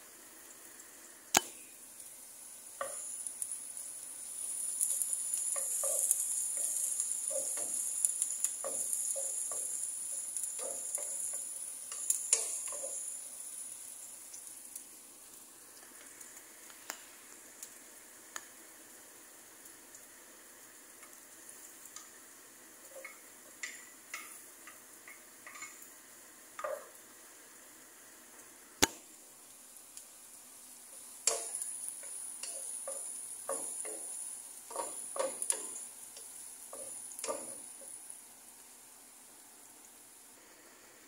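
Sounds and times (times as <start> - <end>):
onion and garlic sizzling in oil: 0.0 - 41.0
sharp click: 1.3 - 1.6.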